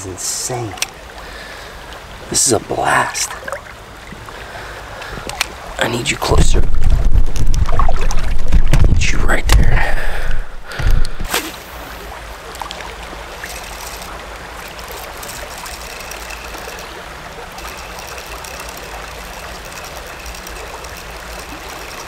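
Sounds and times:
creek water running: 0:00.0 - 0:22.0
low thumps: 0:06.6 - 0:11.3.

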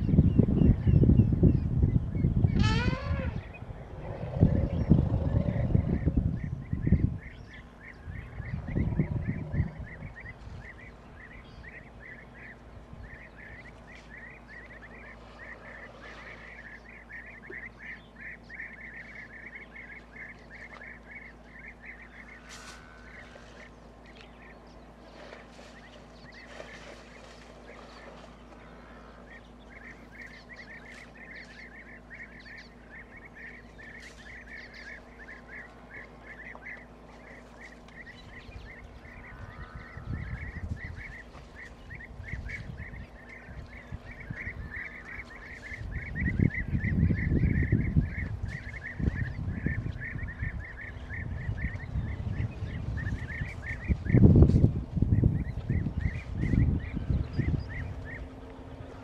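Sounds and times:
rapid high animal calls: 0:02.6 - 0:06.0.

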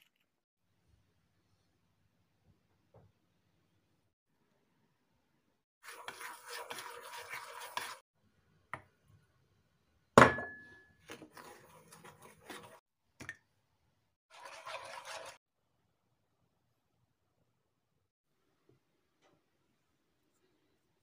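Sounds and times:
metal spoon scraping a bowl: 0:05.8 - 0:08.0, 0:11.1 - 0:12.8, 0:14.3 - 0:15.4.

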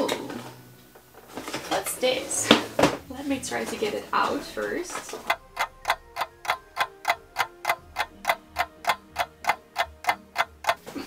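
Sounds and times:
faint held musical notes: 0:00.0 - 0:11.0
clock ticking: 0:02.5 - 0:11.0.

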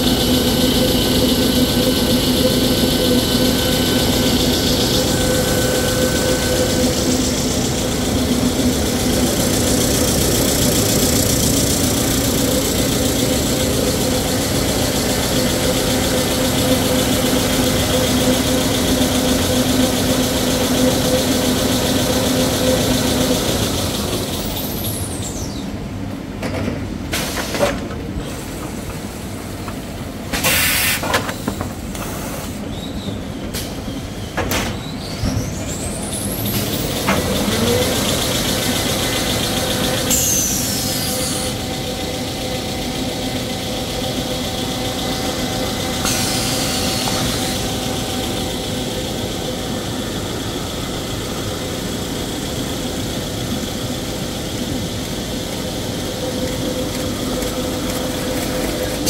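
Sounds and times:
rising machine whine: 0:00.0 - 0:25.8, 0:35.7 - 0:59.0
machinery drone: 0:00.0 - 0:26.0, 0:35.2 - 0:59.0
compressed air hiss: 0:30.4 - 0:31.1.

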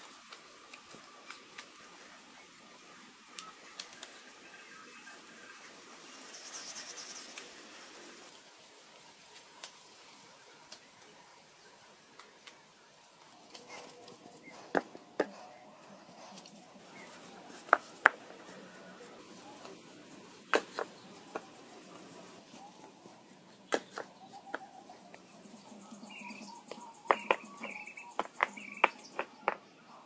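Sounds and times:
stones knocking together: 0:20.5 - 0:21.5, 0:26.7 - 0:29.6.

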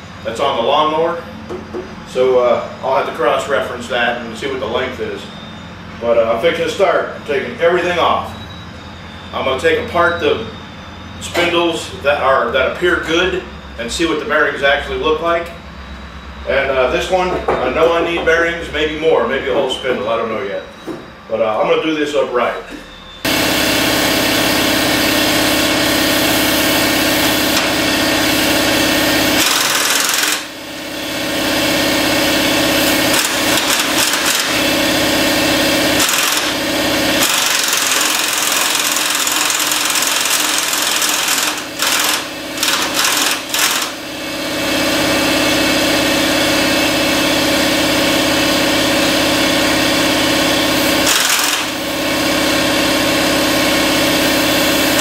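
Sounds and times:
pneumatic impact wrench running: 0:23.2 - 0:55.0.

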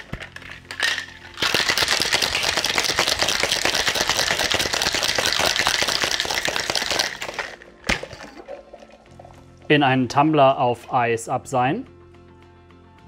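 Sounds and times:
ice rattling in cocktail shaker: 0:00.0 - 0:09.7.

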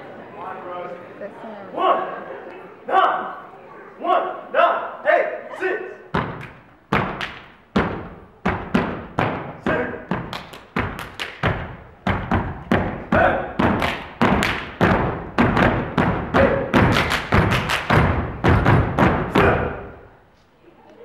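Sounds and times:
foot stomps on wooden stage: 0:06.1 - 0:19.6
hand claps: 0:06.3 - 0:07.6, 0:10.1 - 0:12.8, 0:13.6 - 0:19.1.

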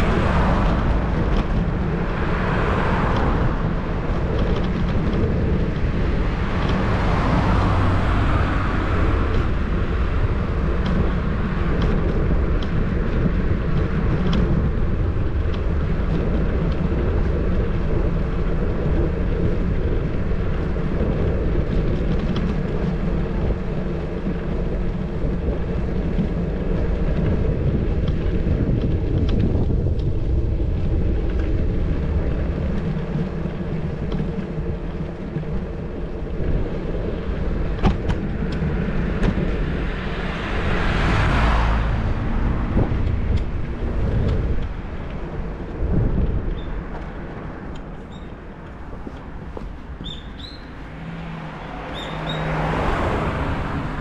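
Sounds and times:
vehicle passing: 0:00.0 - 0:10.8, 0:38.3 - 0:46.3, 0:48.3 - 0:54.0
road and tyre noise: 0:00.0 - 0:54.0
wind rumbling on microphone: 0:00.0 - 0:54.0.

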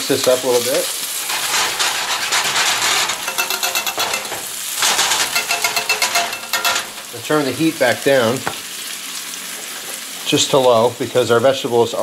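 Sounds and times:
vegetables sizzling in oil: 0:00.0 - 0:12.0
metal tongs scraping a pan: 0:00.5 - 0:08.0.

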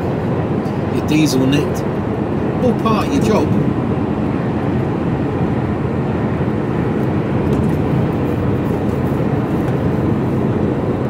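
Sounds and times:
lorry engine and road drone: 0:00.0 - 0:11.0.

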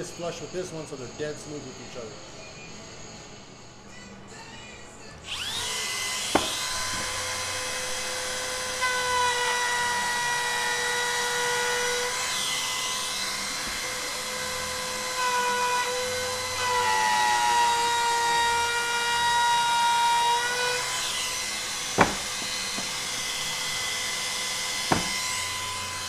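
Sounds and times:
router high whine: 0:05.2 - 0:26.0.

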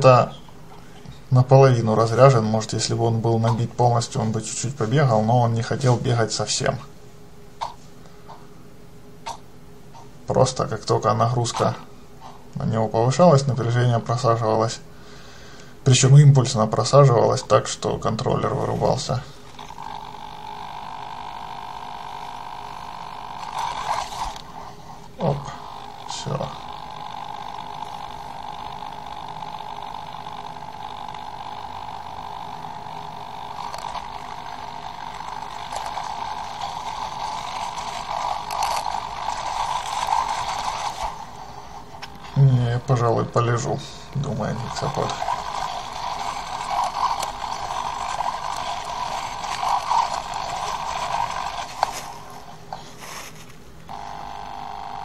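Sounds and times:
electric servo hum: 0:16.7 - 0:55.0.

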